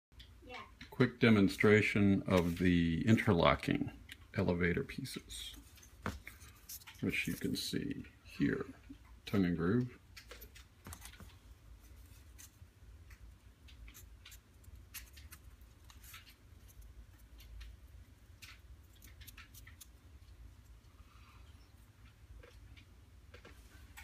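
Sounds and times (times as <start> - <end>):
low steady hum: 0.1 - 24.0.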